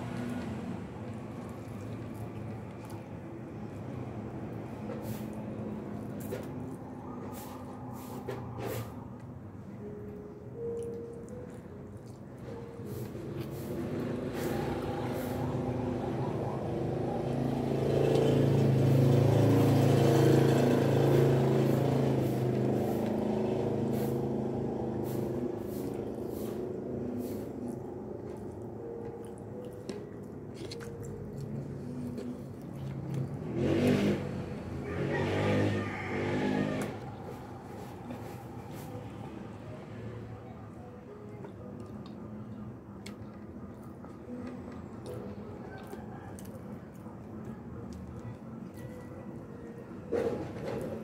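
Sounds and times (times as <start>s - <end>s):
vehicle engine humming: 0.0s - 51.0s
chewing and lip smacks: 1.0s - 4.2s, 10.6s - 12.7s, 27.6s - 33.4s, 45.0s - 49.6s.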